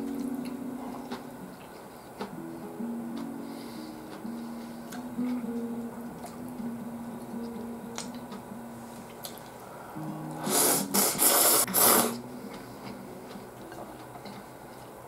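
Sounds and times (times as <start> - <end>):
soft background music: 0.0 - 15.0
person slurping noodles: 10.4 - 12.2.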